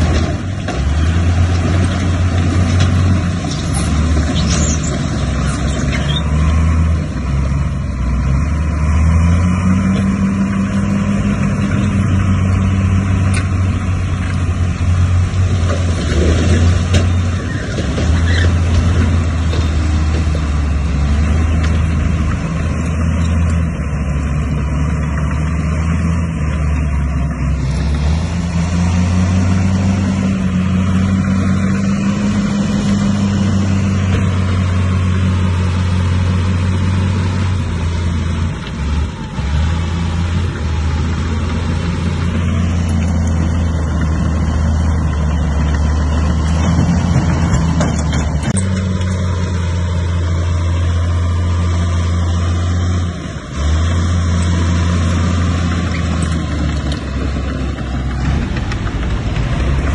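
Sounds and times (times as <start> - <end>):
bulldozer diesel engine running: 0.0 - 59.9.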